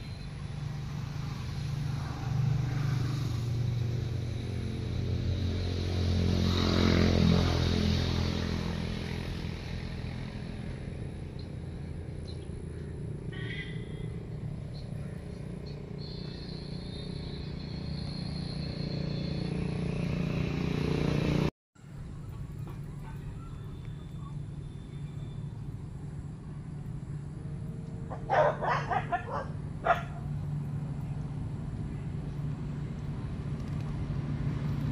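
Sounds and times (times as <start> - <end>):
vehicle engine passing by: 0.0 - 34.9
faint high chirp: 22.3 - 25.9.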